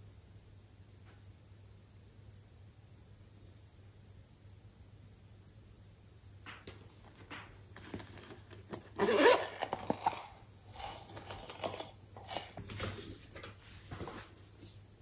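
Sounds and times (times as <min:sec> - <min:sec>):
rustling scrape: 0:07.8 - 0:14.8.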